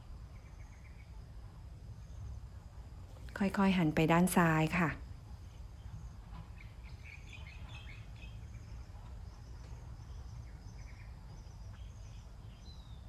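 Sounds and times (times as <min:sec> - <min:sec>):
birds chirping: 0:05.5 - 0:13.0.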